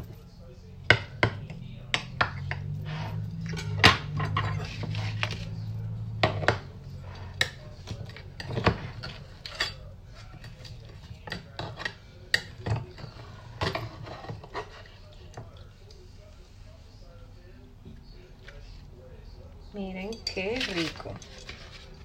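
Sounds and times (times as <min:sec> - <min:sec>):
metal spoon scraping glass dish: 0:02.2 - 0:05.5.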